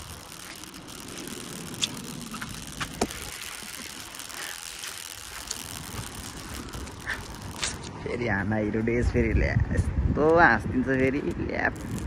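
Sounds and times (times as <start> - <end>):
sharp clicks: 0.0 - 8.0
low hum: 0.0 - 8.8.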